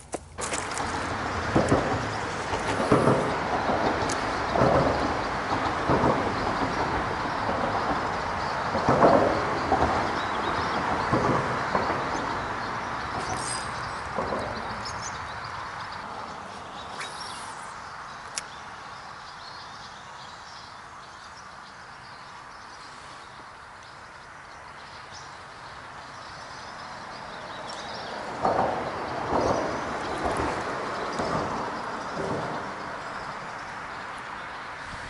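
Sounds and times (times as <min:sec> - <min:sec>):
bumps and rustles: 0:00.0 - 0:15.6
road traffic rushing: 0:00.0 - 0:35.0
birds chirping: 0:00.4 - 0:35.0.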